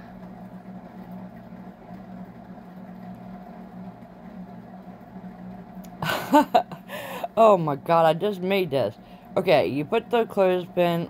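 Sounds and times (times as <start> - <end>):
low machine hum: 0.0 - 11.0
woman's voice: 7.2 - 11.0.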